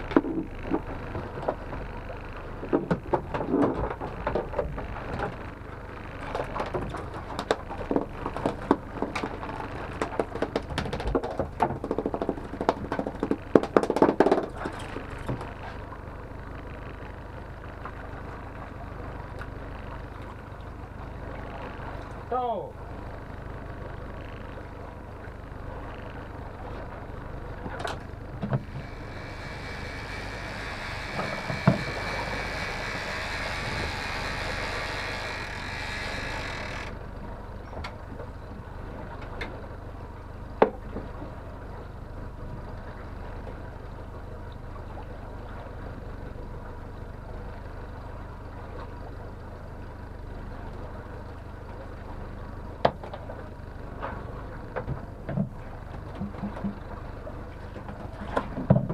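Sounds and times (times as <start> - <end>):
outboard motor humming: 0.0 - 58.9
knocks on boat: 58.2 - 58.9.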